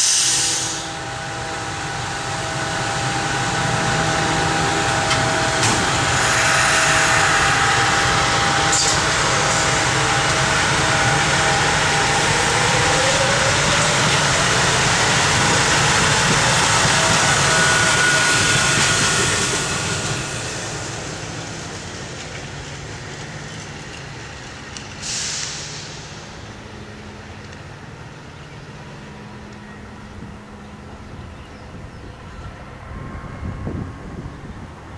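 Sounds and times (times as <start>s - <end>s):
brief hiss: 0.0s - 0.9s, 24.9s - 26.4s
train motor hum and whine: 0.0s - 34.9s
train wheels rumbling on rail: 0.0s - 34.9s.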